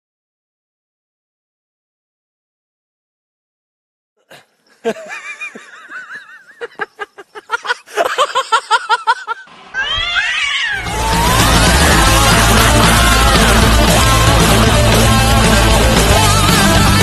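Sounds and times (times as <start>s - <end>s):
short repeated cat cries: 9.7s - 11.0s
cat yowling: 9.8s - 11.6s
loud rock music with guitar: 10.8s - 17.0s.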